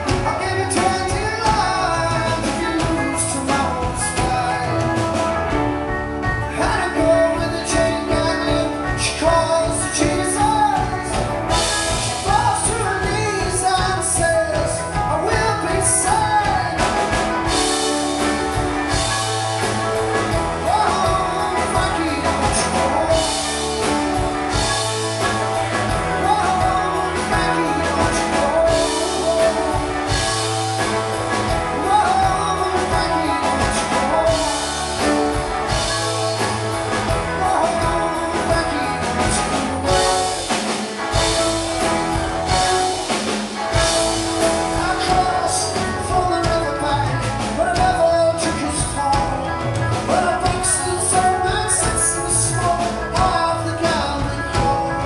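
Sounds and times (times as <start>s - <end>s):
live rock band playing: 0.0s - 55.0s
person singing: 0.0s - 55.0s.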